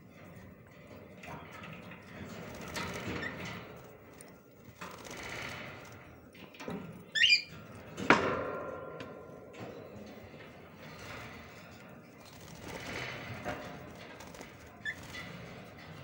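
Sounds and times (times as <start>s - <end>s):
bird wings fluttering: 2.3s - 6.0s, 12.2s - 15.8s
bird chirp: 7.1s - 7.5s.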